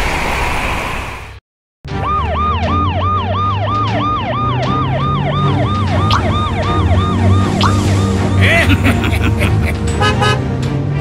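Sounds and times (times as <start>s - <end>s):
police siren yelping: 1.9s - 9.7s.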